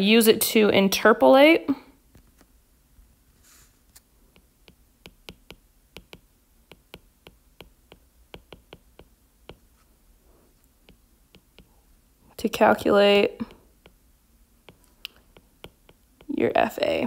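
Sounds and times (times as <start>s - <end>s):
stylus tapping on glass screen: 4.3s - 9.8s, 10.8s - 11.8s, 14.6s - 16.4s.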